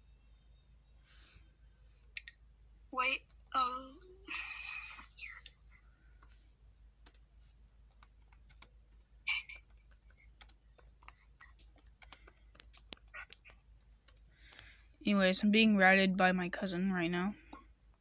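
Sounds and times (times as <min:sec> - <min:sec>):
laptop touchpad and keys clicking: 0:07.0 - 0:07.2, 0:07.9 - 0:14.7.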